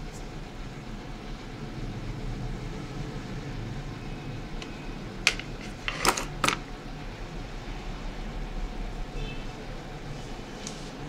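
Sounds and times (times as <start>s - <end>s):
low fan hum: 0.0s - 11.0s.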